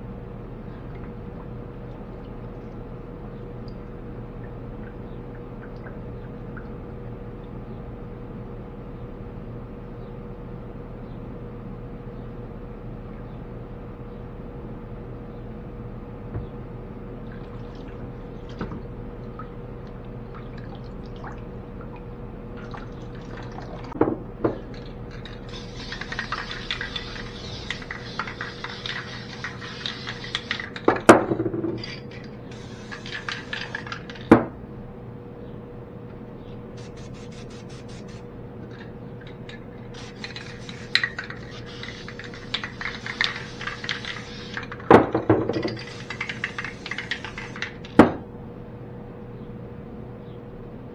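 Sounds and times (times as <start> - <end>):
steady low hum: 0.0 - 50.9
water splashing and dripping: 17.3 - 24.0.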